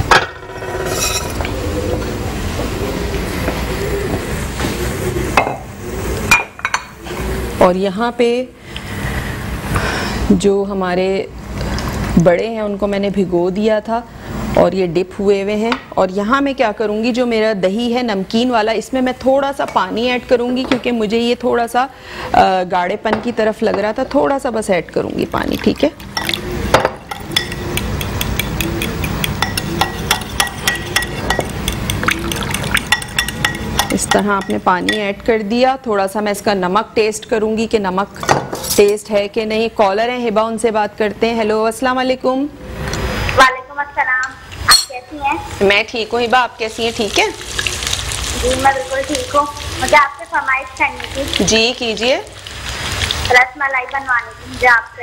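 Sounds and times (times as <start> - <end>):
spoon clinking in glass bowl: 27.1 - 35.1, 44.7 - 45.1
fritters sizzling in hot oil: 45.4 - 55.0.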